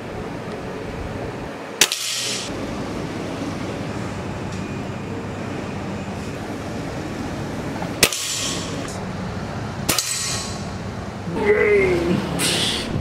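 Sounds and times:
steady background noise: 0.0s - 13.0s
air rifle shots: 1.8s - 2.5s, 8.0s - 8.8s, 9.9s - 10.6s.

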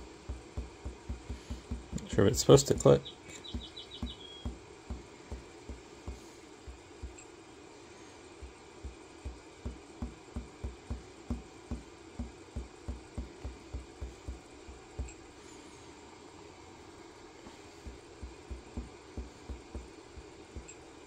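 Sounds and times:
steady low hum: 0.0s - 21.0s
fingertip tapping on touchscreen: 0.3s - 2.1s, 2.7s - 7.3s, 8.4s - 14.4s, 17.8s - 20.8s.

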